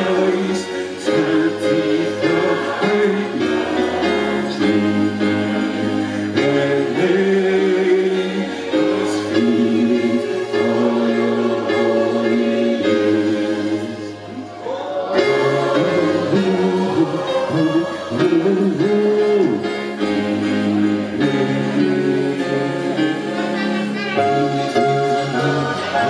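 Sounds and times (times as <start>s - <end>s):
choir singing a hymn: 0.0s - 26.0s.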